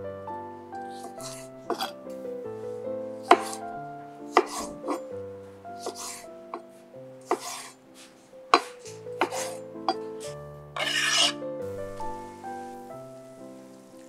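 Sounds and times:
background music: 0.0s - 14.0s
knife chopping on cutting board: 1.0s - 2.0s, 3.2s - 3.6s, 4.4s - 5.0s, 5.8s - 6.2s, 7.3s - 7.7s, 8.6s - 9.6s.

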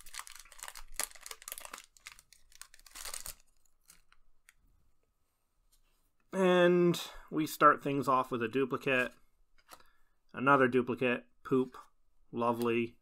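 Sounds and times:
foil wrapper tearing and crinkling: 0.0s - 4.2s.

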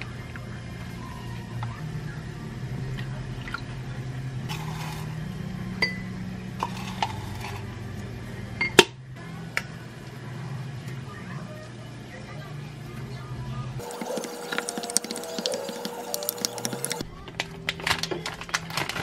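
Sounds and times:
liquid pouring: 13.8s - 17.0s
spoon stirring in glass mug: 13.8s - 17.0s.

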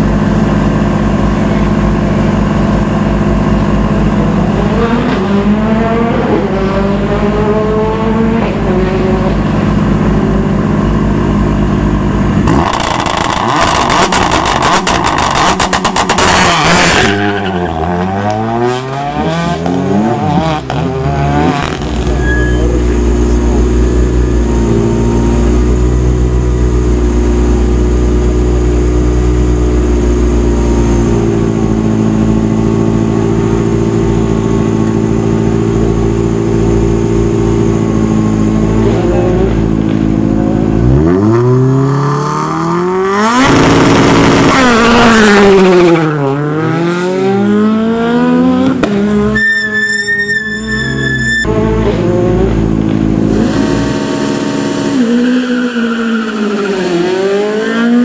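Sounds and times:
car engine idling: 0.0s - 4.6s, 9.4s - 16.2s, 21.8s - 41.1s
rally car engine revving and accelerating: 0.0s - 58.0s.

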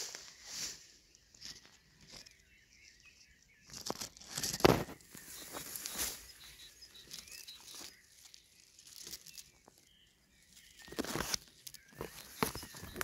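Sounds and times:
leaves rustling and brushing: 0.0s - 2.4s, 3.7s - 13.0s
faint bird chirps: 0.0s - 13.0s.

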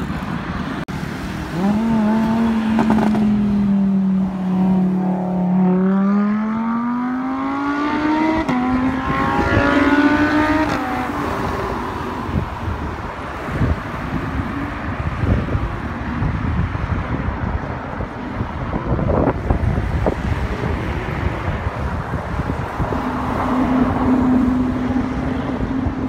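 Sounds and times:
wind and road noise: 0.0s - 26.0s
sports car accelerating past: 1.4s - 12.4s.

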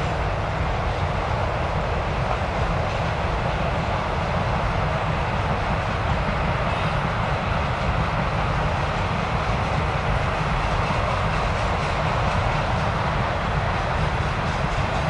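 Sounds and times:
train wheels rolling on rail: 0.0s - 15.0s.

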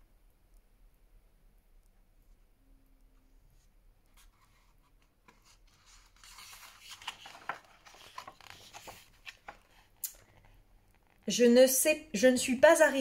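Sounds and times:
book page rustling: 3.6s - 11.3s.

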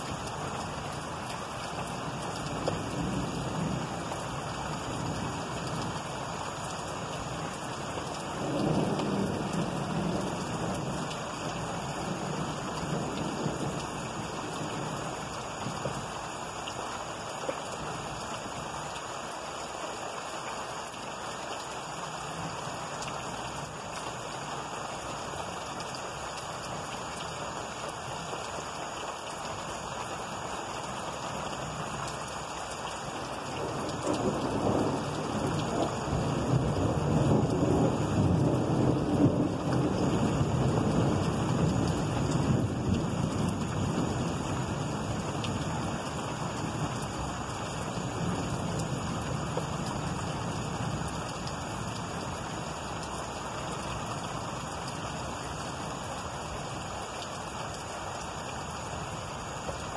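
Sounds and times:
steady rain: 0.0s - 59.9s
thunder rumbling: 8.4s - 15.1s, 33.6s - 45.6s.

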